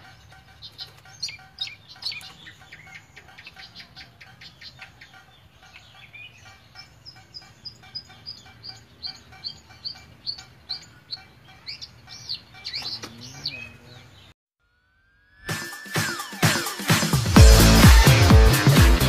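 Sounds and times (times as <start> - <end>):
bird chirping: 0.0 - 14.4.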